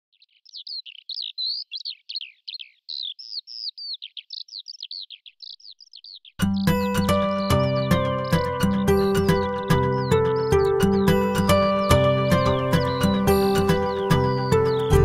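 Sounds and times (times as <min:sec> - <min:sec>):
songbird singing: 0:00.0 - 0:15.0
loud music: 0:06.4 - 0:15.0.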